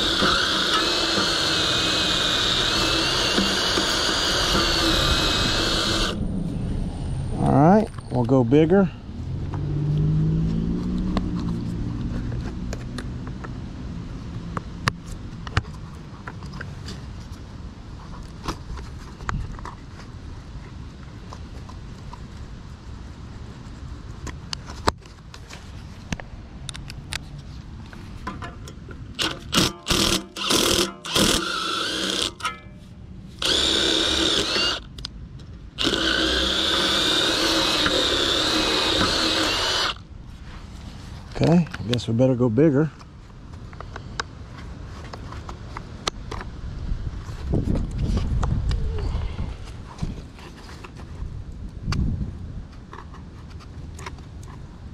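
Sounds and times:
cordless drill boring into metal: 0.0 - 6.2, 29.2 - 32.6, 33.4 - 34.9, 35.8 - 40.0
low engine-like hum: 6.1 - 15.3.

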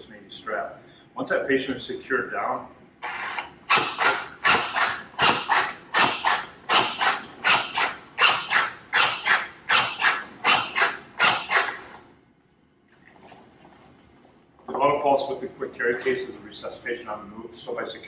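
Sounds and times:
mechanical cpr device strokes: 3.0 - 12.0.

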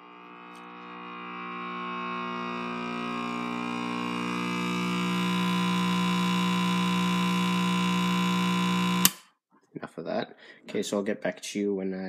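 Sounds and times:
buzzing mains hum from radio: 0.0 - 9.1.

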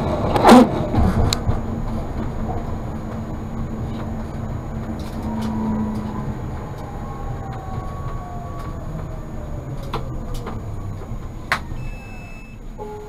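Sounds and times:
tram wheels rumbling on rails: 0.0 - 13.0
thin whining tones: 4.5 - 13.0.

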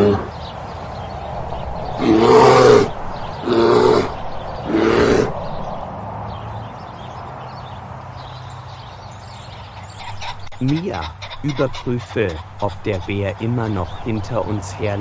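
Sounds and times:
bear roaring: 0.0 - 0.3, 1.9 - 5.6
steady low hum: 0.9 - 6.0.

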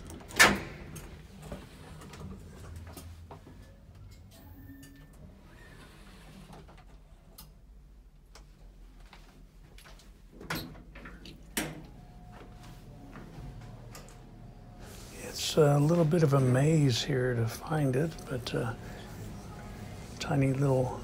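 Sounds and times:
elevator humming: 10.2 - 21.0.

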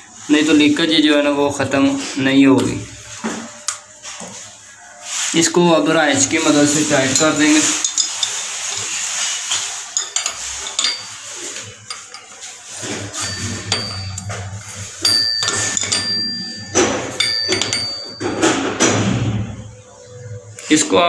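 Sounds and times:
spanner clinking on metal: 13.1 - 18.5.

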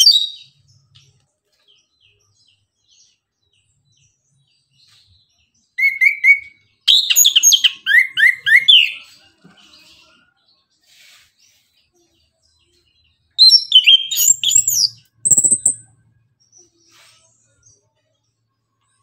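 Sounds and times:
bird whistling song: 0.0 - 0.5, 5.8 - 9.1, 13.4 - 15.9.

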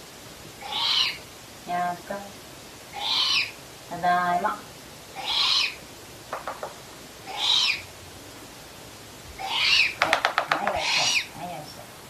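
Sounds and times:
owl hissing screech calls: 0.6 - 1.3, 2.9 - 3.7, 5.1 - 5.9, 7.2 - 8.0, 9.4 - 11.5
wings flapping clicks: 6.3 - 6.8, 10.0 - 10.8.

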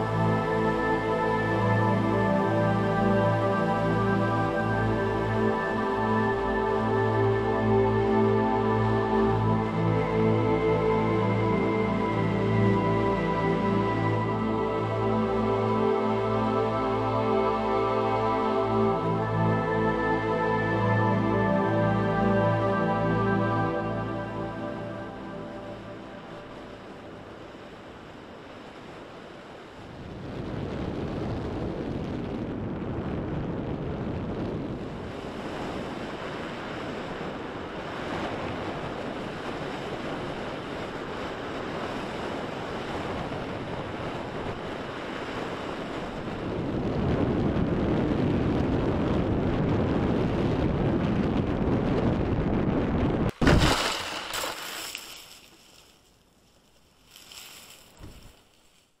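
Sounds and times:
wind rushing over camera: 27.7 - 53.8, 55.3 - 59.0
small bumps: 53.3 - 58.9.

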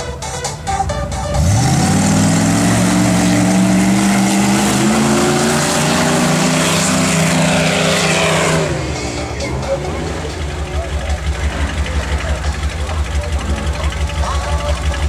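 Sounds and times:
race car engine revving: 0.0 - 15.0.

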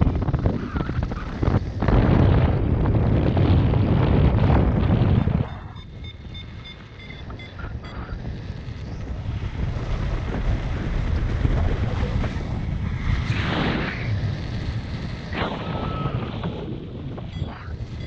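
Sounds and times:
wind buffeting microphone: 0.0 - 18.0
short high beeps: 5.4 - 8.2.

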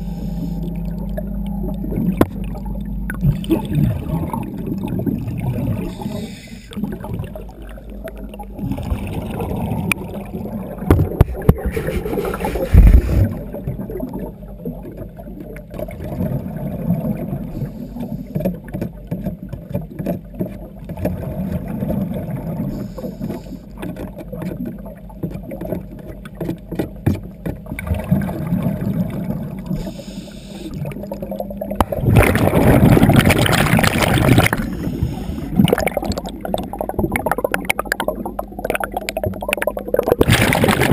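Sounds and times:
gurgling air bubbles underwater: 0.0 - 26.3, 27.6 - 40.9
rush of bubbles: 0.6 - 15.1, 27.8 - 30.0, 30.7 - 40.9.

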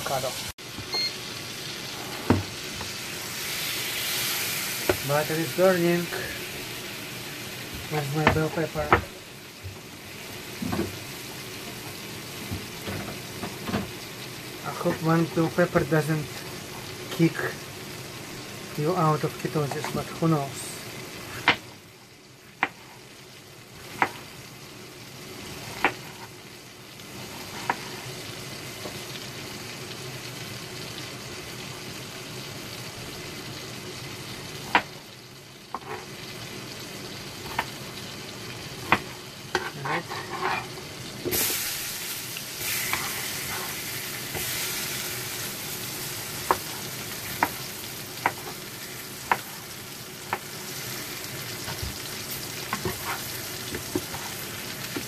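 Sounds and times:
butter sizzling in frying pan: 0.0 - 55.0.

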